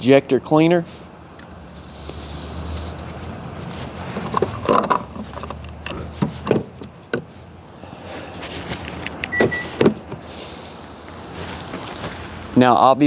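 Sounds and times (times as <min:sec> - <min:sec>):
fuel cap clicks and knocks: 0:04.2 - 0:07.3.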